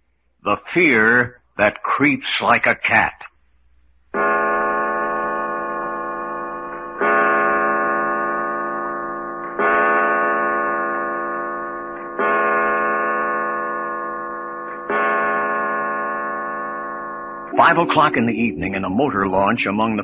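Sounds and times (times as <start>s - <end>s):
clock chiming deep strokes: 4.2s - 20.0s.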